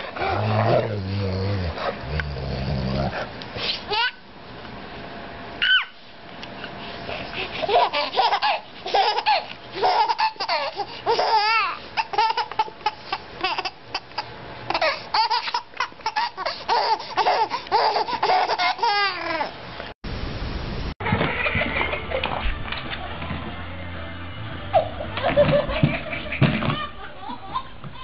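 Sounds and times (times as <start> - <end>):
baby laughing and squealing: 3.7 - 4.2, 5.6 - 6.0, 7.4 - 19.6.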